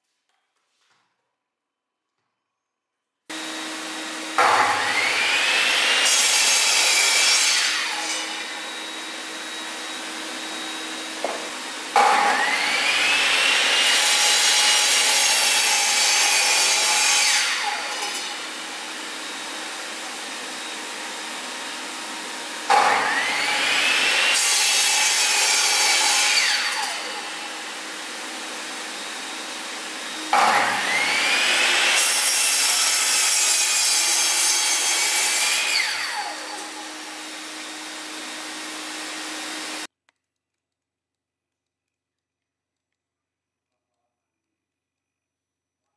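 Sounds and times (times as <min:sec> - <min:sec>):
mitre saw cutting wood: 0:03.3 - 0:39.9
vacuum cleaner running: 0:03.3 - 0:39.9.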